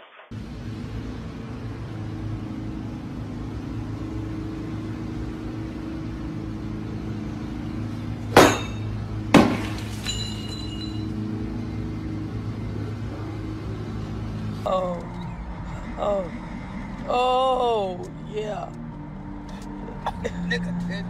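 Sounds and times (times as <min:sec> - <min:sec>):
golf club striking: 0:08.3 - 0:10.9
sharp clinking hit: 0:08.4 - 0:11.2.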